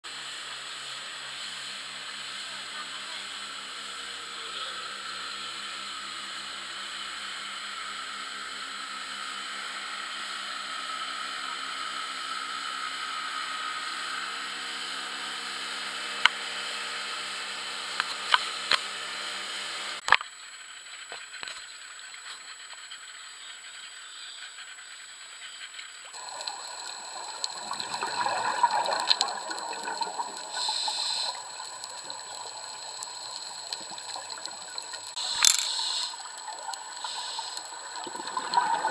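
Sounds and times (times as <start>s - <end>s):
rushing water: 26.1s - 35.2s
underwater bubbles gurgling: 26.1s - 35.4s, 36.1s - 38.9s.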